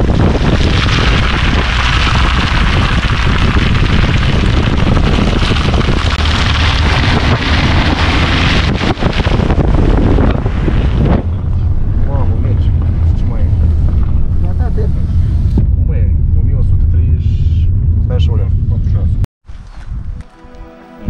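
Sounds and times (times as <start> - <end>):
tyre noise on slushy road: 0.0 - 15.5
wind buffeting camera: 0.0 - 20.3.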